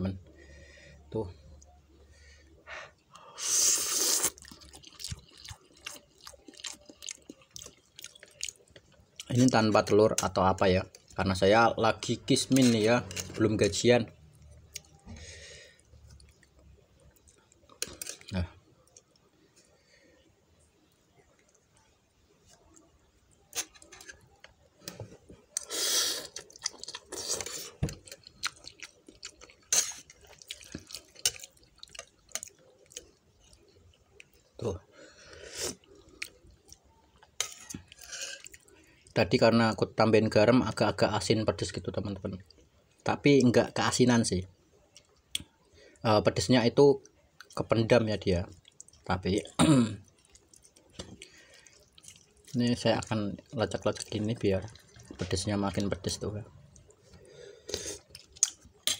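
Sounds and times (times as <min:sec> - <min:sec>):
person slurping noodles: 0:03.4 - 0:04.6, 0:25.6 - 0:26.4
chewing: 0:04.2 - 0:09.6, 0:22.5 - 0:34.5, 0:35.6 - 0:39.1, 0:48.5 - 0:56.0, 0:56.6 - 0:58.9
wet chewing clicks: 0:50.0 - 0:55.9.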